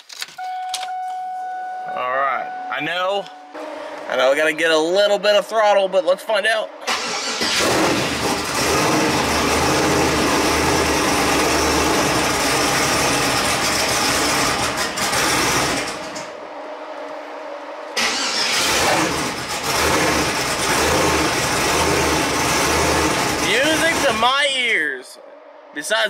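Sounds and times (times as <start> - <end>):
car engine running rough: 6.9 - 17.0, 17.9 - 24.3.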